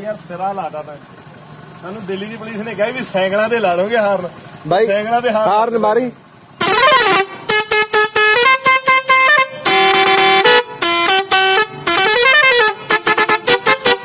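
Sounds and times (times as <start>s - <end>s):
trumpet horns playing a tune: 6.6s - 14.0s.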